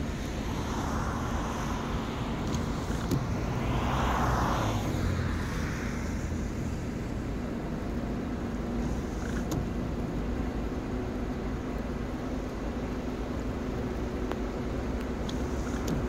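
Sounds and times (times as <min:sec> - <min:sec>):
car passing: 0:00.0 - 0:07.6
low traffic rumble: 0:00.0 - 0:16.0.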